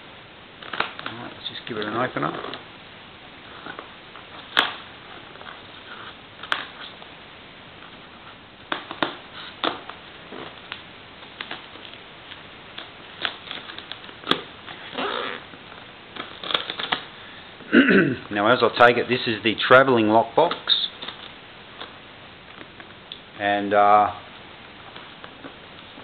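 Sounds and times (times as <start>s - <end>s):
paper rustling: 8.2s - 14.9s, 15.5s - 17.1s.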